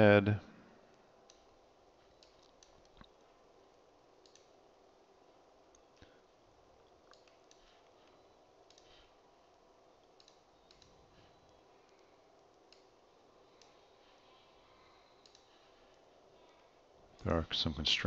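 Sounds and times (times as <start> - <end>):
faint room hiss: 0.0 - 18.0
computer mouse clicks: 1.2 - 1.5, 2.1 - 3.2, 4.2 - 4.6, 7.0 - 9.1, 10.0 - 14.1, 15.1 - 16.0.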